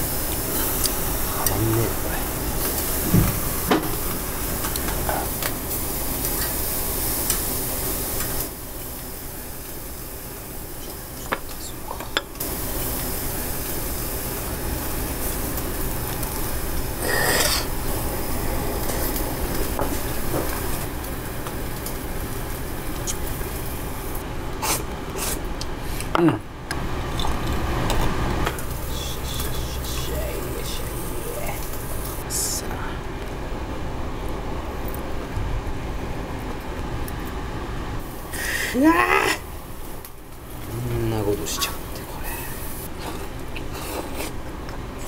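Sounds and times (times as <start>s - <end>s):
meat sizzling on a grill: 0.0s - 26.0s, 28.5s - 32.6s, 38.0s - 44.6s.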